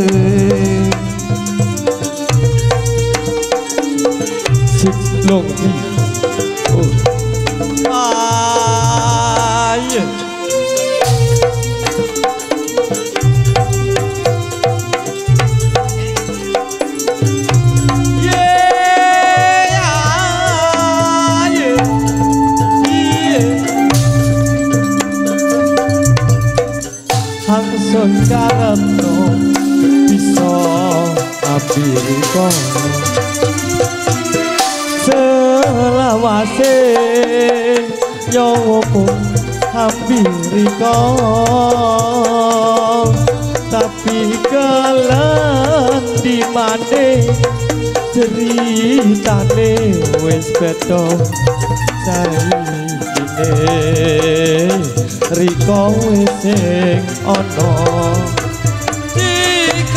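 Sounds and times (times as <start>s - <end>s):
sustained melodic notes: 0.0s - 36.5s
hand drums: 0.0s - 59.9s
rattling percussion: 0.0s - 59.9s
hand drum strikes: 11.1s - 34.7s
deep low notes: 19.8s - 33.1s.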